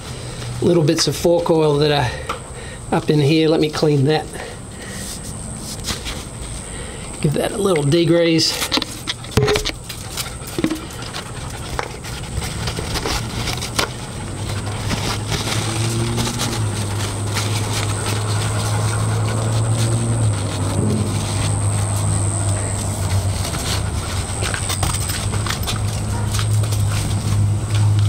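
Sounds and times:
low engine drone: 8.8s - 28.0s
thin high whine: 16.6s - 25.7s.

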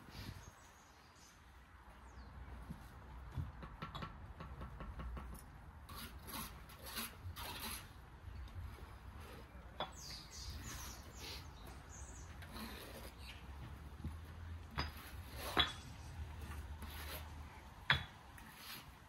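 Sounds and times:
trowel scraping mortar: 5.8s - 8.5s, 9.1s - 19.0s.

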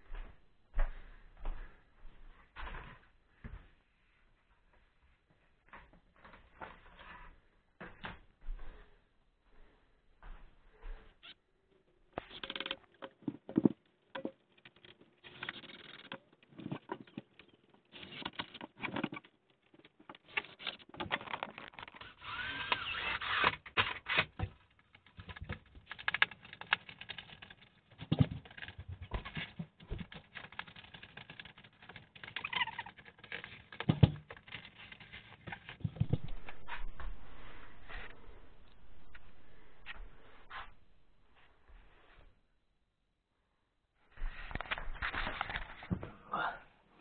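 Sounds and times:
squeaky creak: 11.2s - 11.4s, 20.2s - 24.1s, 32.2s - 33.9s.

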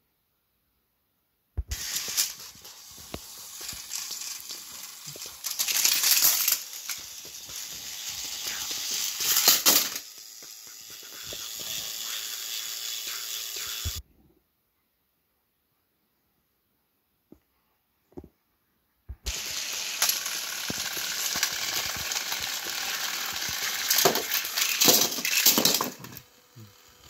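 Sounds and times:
toy engine falling: 1.7s - 14.0s, 19.2s - 27.0s
toy train motors whirring: 1.7s - 14.0s, 19.2s - 27.0s
toy wheels clicking and rattling: 1.7s - 14.0s, 19.3s - 27.0s.

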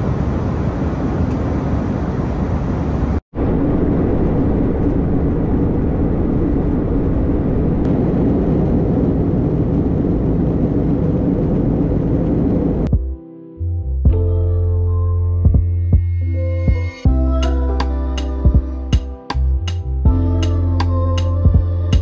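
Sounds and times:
airplane cabin engine noise: 0.0s - 12.9s.

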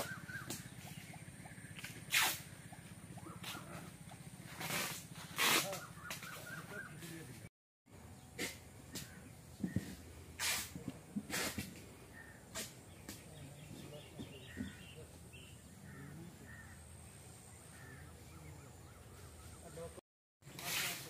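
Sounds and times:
faint bird calls: 0.0s - 7.4s, 8.2s - 10.7s, 11.3s - 20.0s
crow cawing: 15.8s - 16.8s, 17.7s - 18.2s.

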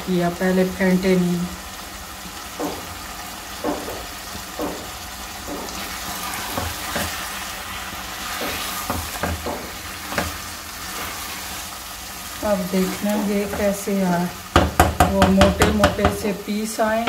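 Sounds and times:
curry sizzling in pot: 0.0s - 16.8s
spatula scraping and knocking pot: 2.5s - 7.3s, 8.2s - 11.3s.

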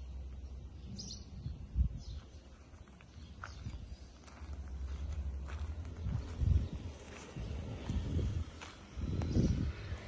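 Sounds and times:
footsteps on dirt and grass: 2.1s - 10.0s.

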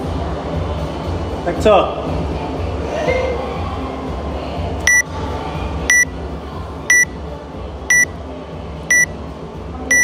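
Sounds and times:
short high timer beeps: 5.9s - 6.1s, 6.9s - 7.1s, 8.9s - 9.1s.

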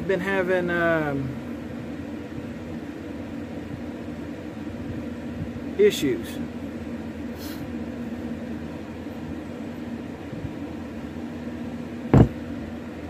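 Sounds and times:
electric fan humming: 0.0s - 13.0s
loud thump at microphone: 12.1s - 12.4s.

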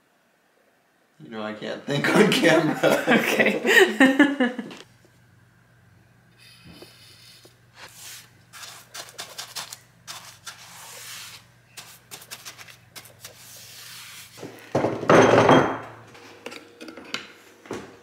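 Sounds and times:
paintbrush scratching on wall: 6.8s - 14.4s.

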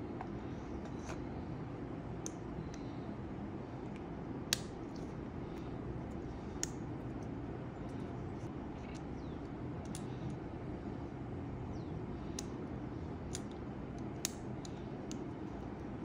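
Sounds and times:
steady low hum: 0.0s - 16.0s
small sharp clicks and taps: 8.9s - 10.4s.

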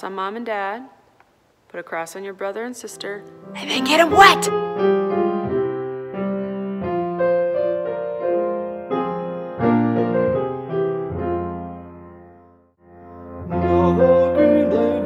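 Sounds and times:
piano music: 3.2s - 15.0s.

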